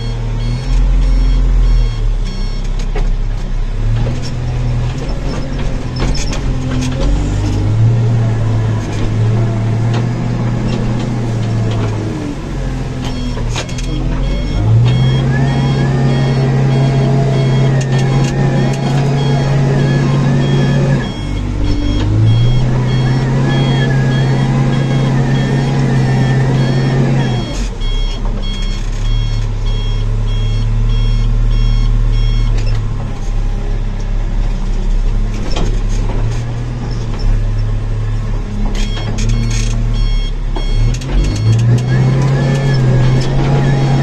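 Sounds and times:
reversing alarm beeping: 0:00.0 - 0:02.7, 0:13.0 - 0:32.7, 0:38.8 - 0:44.0
diesel engine revving: 0:00.0 - 0:44.0.

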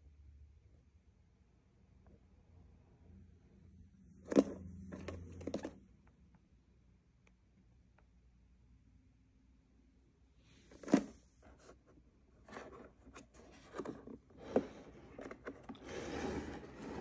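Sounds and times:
plastic toy car scraping: 0:04.3 - 0:05.8, 0:10.5 - 0:17.0.

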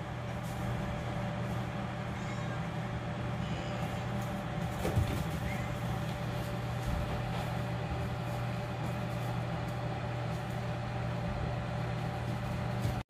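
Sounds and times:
low machine hum: 0:00.0 - 0:13.0
faint high tone: 0:03.4 - 0:04.2.

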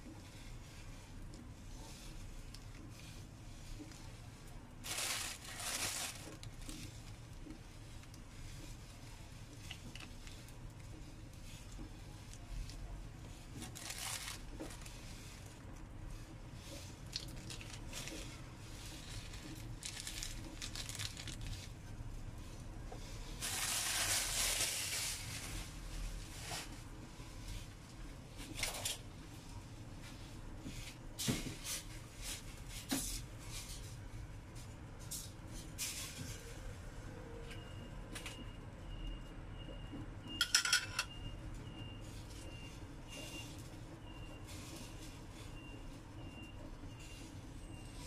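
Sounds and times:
plastic sachets crinkling and tearing: 0:04.8 - 0:07.3, 0:13.6 - 0:15.8, 0:17.0 - 0:21.9, 0:23.4 - 0:25.8.

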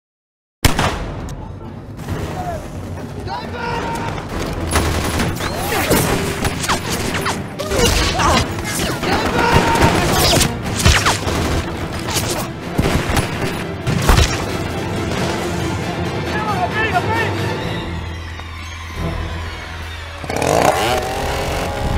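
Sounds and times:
gunshots and bursts of gunfire: 0:00.6 - 0:01.4, 0:04.1 - 0:15.7
music: 0:00.8 - 0:21.9.

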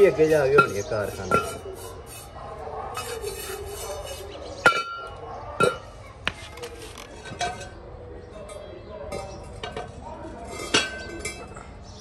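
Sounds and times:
brush scrubbing brass: 0:00.1 - 0:02.3, 0:02.9 - 0:04.4.

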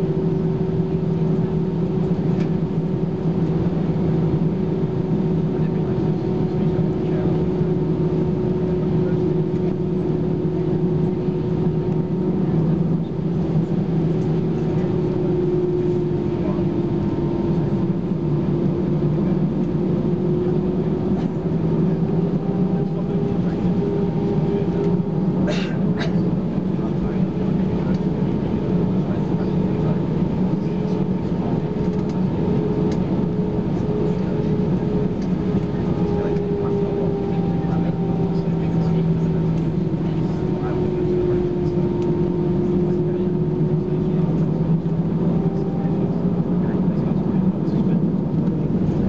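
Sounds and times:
jet engines droning: 0:00.0 - 0:49.0
cabin airflow noise: 0:30.6 - 0:49.0.

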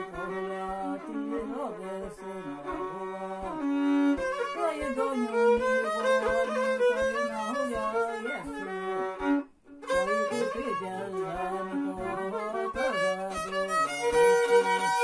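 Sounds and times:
fiddle folk tune: 0:00.0 - 0:15.0.

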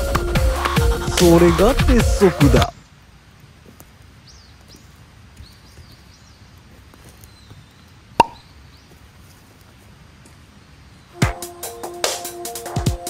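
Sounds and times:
sharp plop: 0:08.2 - 0:08.4.

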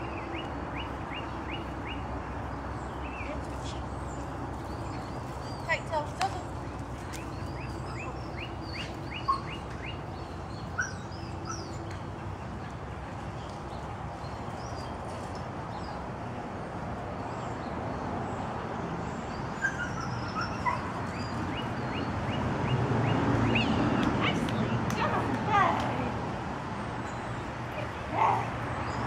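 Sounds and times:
birds chirping: 0:00.0 - 0:29.0
dog yipping: 0:19.6 - 0:21.0.

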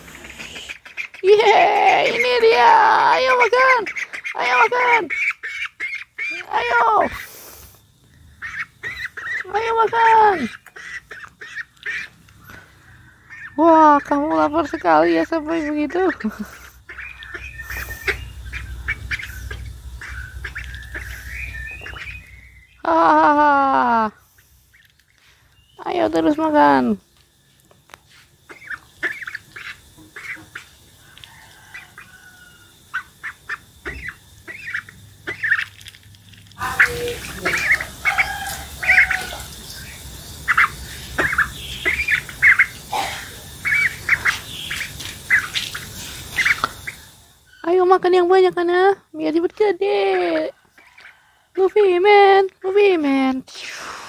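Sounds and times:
duckling peeping: 0:00.1 - 0:07.3, 0:08.4 - 0:23.3, 0:28.5 - 0:36.0, 0:36.6 - 0:48.0
duck giving squeaky calls: 0:36.6 - 0:39.4.

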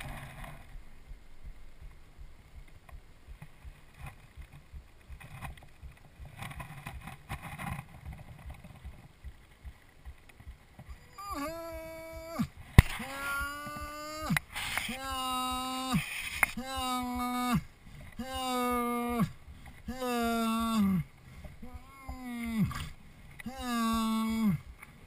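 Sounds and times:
faint low rumble: 0:00.0 - 0:25.0
person groaning: 0:11.2 - 0:24.7.

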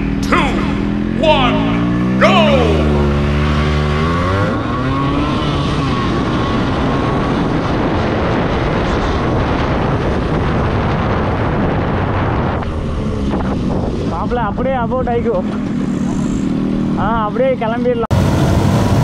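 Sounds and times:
motorcycle engine running: 0:00.0 - 0:07.2
wind rushing over microphone: 0:02.8 - 0:17.0.

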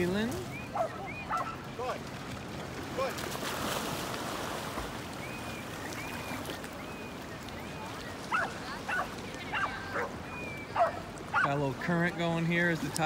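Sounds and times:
water washing: 0:00.0 - 0:13.0
dog yipping: 0:00.7 - 0:01.6, 0:08.3 - 0:10.1, 0:10.8 - 0:11.5.

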